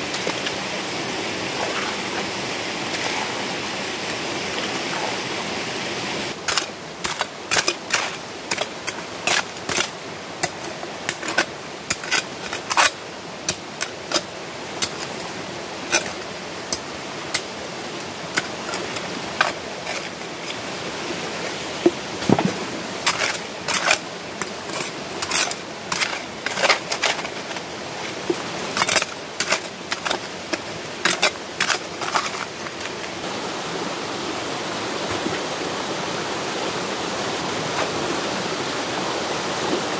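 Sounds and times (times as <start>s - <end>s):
stream rushing: 0.0s - 39.9s
hoe blade scraping stones: 1.5s - 2.3s, 2.9s - 3.5s, 4.6s - 5.3s, 6.4s - 20.6s, 22.2s - 33.2s.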